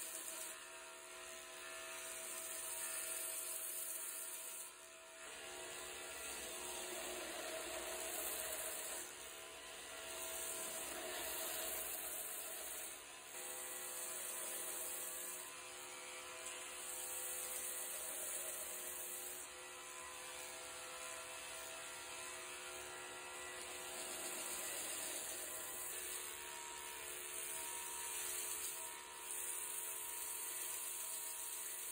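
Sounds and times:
belt grinder motor: 0.0 - 31.9.

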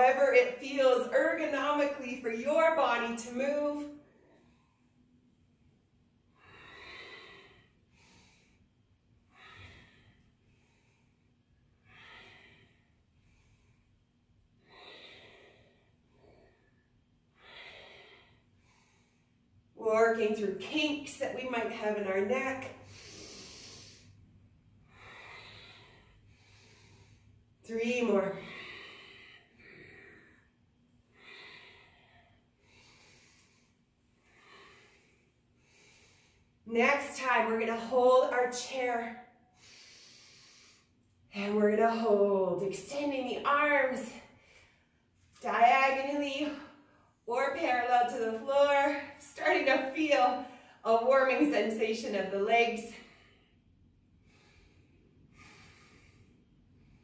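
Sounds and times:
woman breathing: 2.4 - 19.7, 21.8 - 36.6, 39.2 - 41.3, 52.8 - 57.0.

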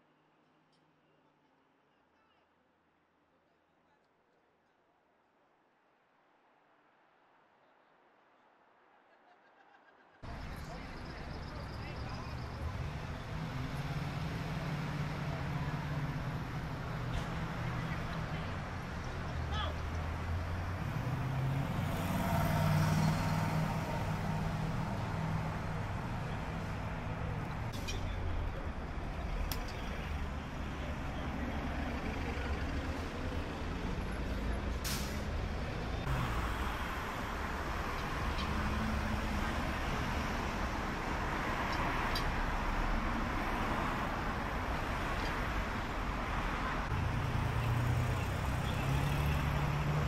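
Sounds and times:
street traffic: 10.2 - 50.0.

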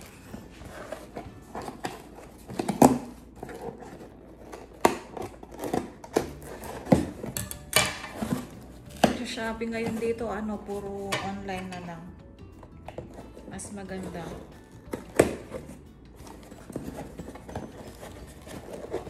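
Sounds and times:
hands handling cardboard box: 14.0 - 19.0.

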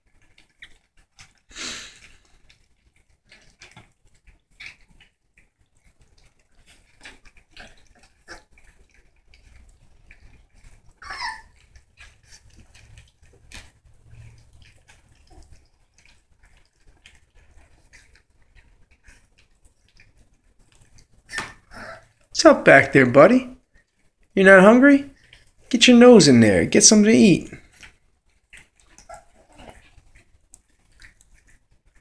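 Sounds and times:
puppies gnawing bones: 0.0 - 22.4, 23.5 - 24.4, 25.1 - 25.7, 27.5 - 32.0
puppy whine: 10.6 - 11.7, 21.3 - 22.2, 28.8 - 30.2.

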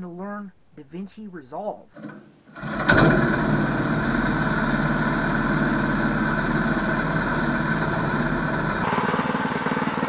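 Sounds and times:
small engine idling: 2.5 - 10.0.

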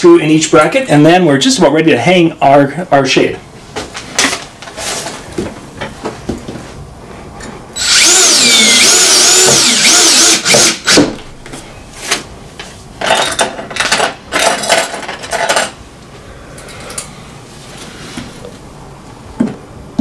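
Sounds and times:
cordless drill driving screws: 7.8 - 11.0.

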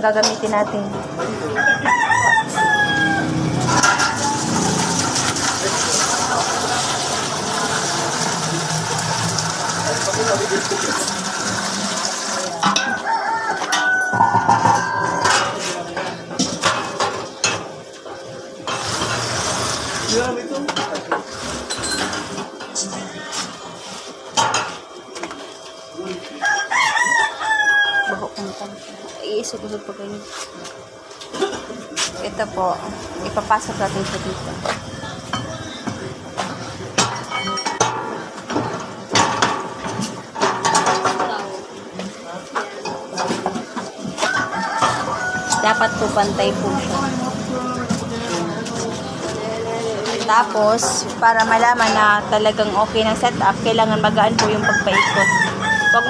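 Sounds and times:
rooster crowing: 1.4 - 5.2, 12.5 - 15.7, 26.2 - 29.4, 44.2 - 47.2, 54.3 - 56.0.

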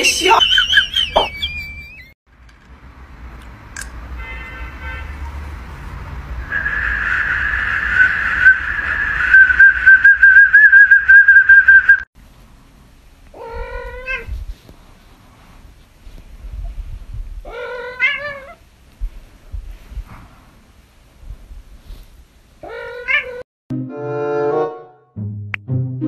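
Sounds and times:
cat meowing: 13.3 - 14.3, 17.5 - 18.6, 22.6 - 23.4.

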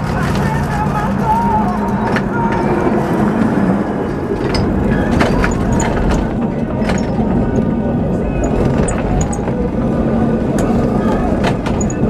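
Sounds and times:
tram rumbling on rails: 0.0 - 12.0
wheel clicks: 8.4 - 9.7, 10.5 - 12.0.

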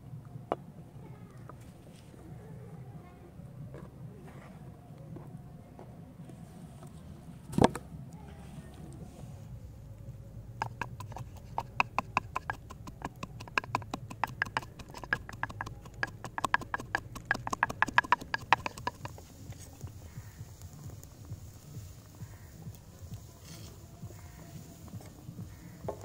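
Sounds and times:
wooden pestle pounding in mortar: 10.5 - 19.3.

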